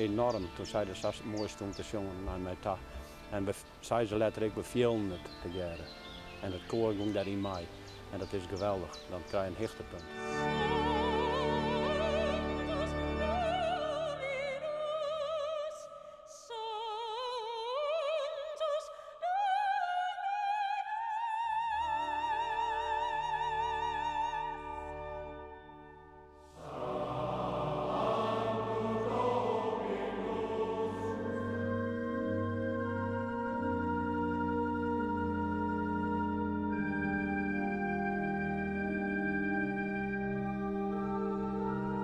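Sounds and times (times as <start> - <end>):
soprano singing with vibrato: 10.3 - 24.8, 26.6 - 37.1
low sustained chords: 24.1 - 42.0.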